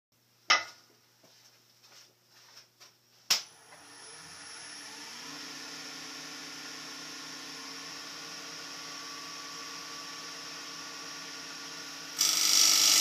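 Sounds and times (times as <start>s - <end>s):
wood lathe motor humming: 3.5s - 13.0s.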